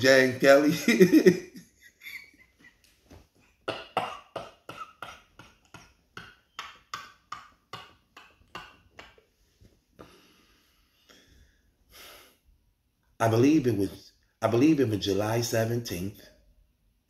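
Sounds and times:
man laughing: 0:00.5 - 0:02.9.

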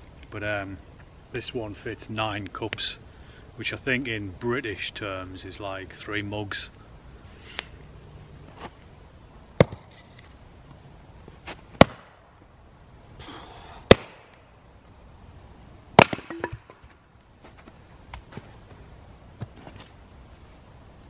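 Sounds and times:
axe splitting logs: 0:09.6 - 0:10.0, 0:11.8 - 0:12.2, 0:13.9 - 0:14.3, 0:16.0 - 0:17.0
split wood pieces falling: 0:16.0 - 0:17.0.

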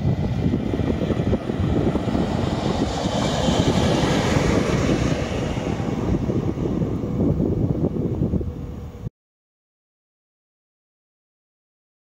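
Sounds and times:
diesel motor trolley passing: 0:00.0 - 0:09.1.

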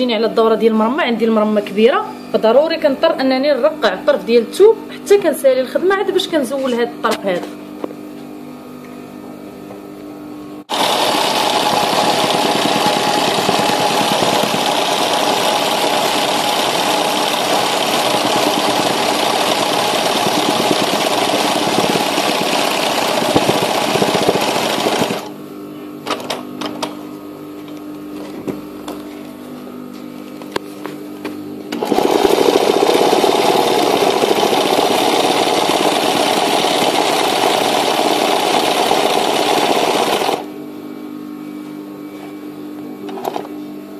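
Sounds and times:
sewing machine running: 0:10.7 - 0:25.3, 0:31.7 - 0:40.5.

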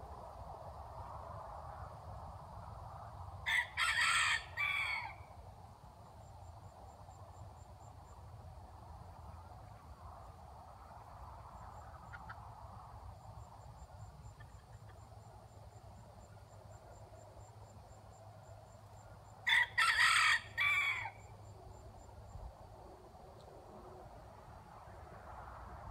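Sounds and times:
rooster crowing: 0:03.4 - 0:05.3, 0:19.4 - 0:21.3.

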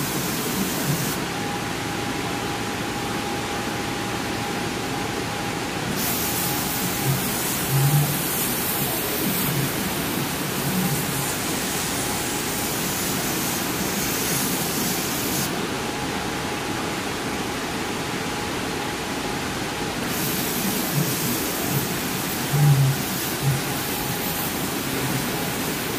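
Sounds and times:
laser cutter air rushing: 0:00.0 - 0:01.6, 0:05.8 - 0:15.7, 0:20.0 - 0:25.9.

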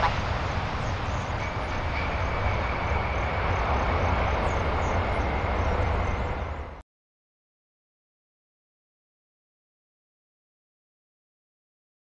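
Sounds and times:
jet engines rumbling with whine: 0:00.0 - 0:06.8.

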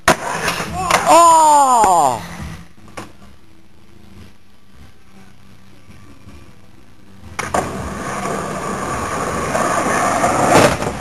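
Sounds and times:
skateboard wheels rolling on asphalt: 0:00.0 - 0:01.0, 0:07.3 - 0:11.0.

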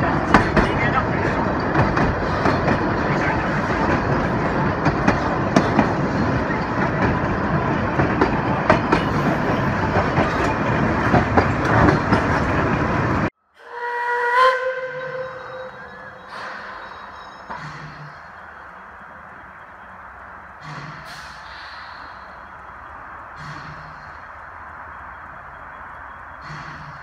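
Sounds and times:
wheels clicking over rail joints: 0:00.0 - 0:13.3, 0:16.1 - 0:27.0
train rumble: 0:00.0 - 0:27.0
steam locomotive whistle: 0:13.6 - 0:18.1.

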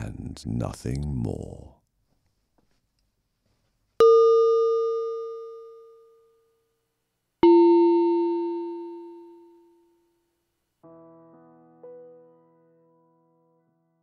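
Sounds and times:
struck bell tones: 0:04.0 - 0:06.5, 0:07.4 - 0:10.0.

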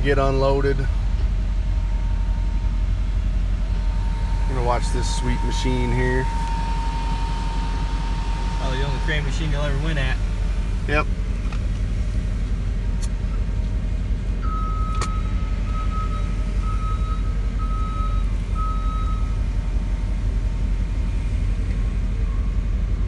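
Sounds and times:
engines rumbling: 0:00.0 - 0:23.0
reversing alarm beeping: 0:01.7 - 0:10.8, 0:14.4 - 0:20.1.

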